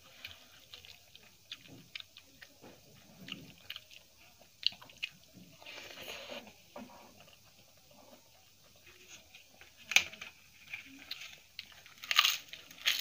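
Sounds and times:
quiet chewing: 0.0 - 13.0
papad crackling as broken: 9.7 - 13.0.

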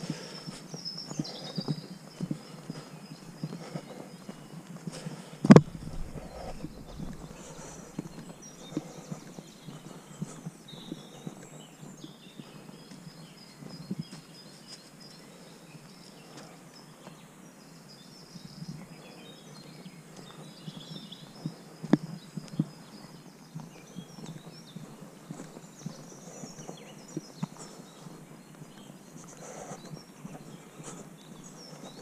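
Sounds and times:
footsteps on dirt path: 0.0 - 32.0
small birds chirping: 0.0 - 32.0.

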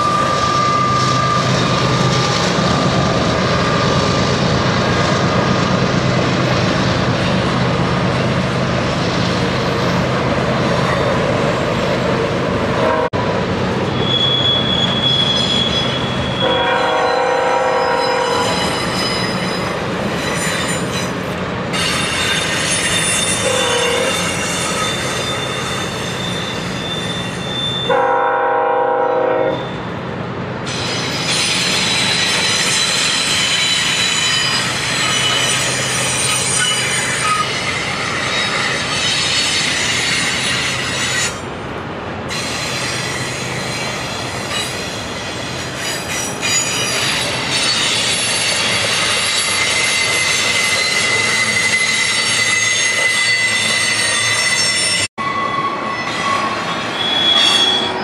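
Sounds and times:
wheel flange squeal: 0.0 - 2.0, 13.9 - 21.1, 21.8 - 28.0, 30.7 - 41.4, 42.3 - 58.0
locomotive drone: 0.0 - 28.2
multi-tone locomotive horn: 12.8 - 13.3, 15.6 - 18.6, 23.4 - 24.3, 27.8 - 29.8.

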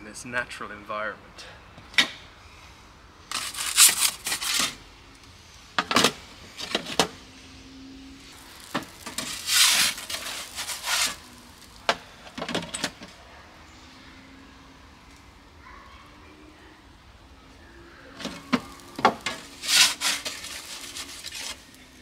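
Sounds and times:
pizza peel scraping on stone: 3.3 - 4.8, 8.6 - 11.4, 18.5 - 21.7.

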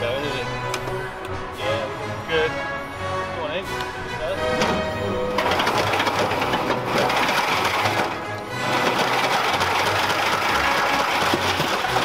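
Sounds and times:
background music: 0.0 - 12.0
washing machine running: 4.2 - 12.0
metal chain rattling in drum: 5.4 - 8.2.

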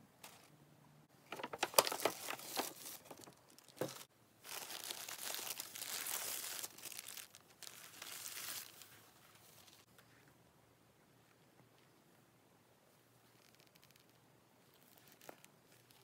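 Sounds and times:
paper bag crackling: 1.3 - 9.9
tissue paper crinkling: 1.3 - 9.9, 13.2 - 16.0.

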